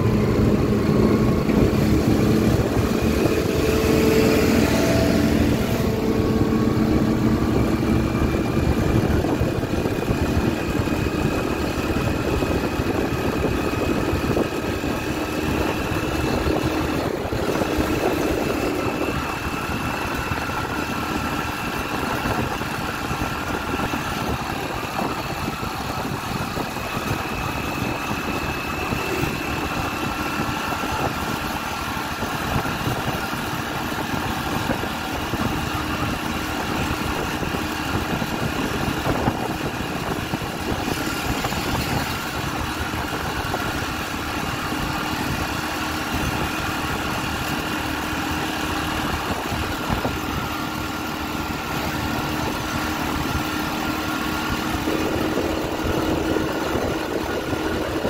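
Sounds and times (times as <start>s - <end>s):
wind rushing: 0.0s - 20.7s
motorcycle engine running: 0.0s - 58.0s
road noise: 0.0s - 58.0s.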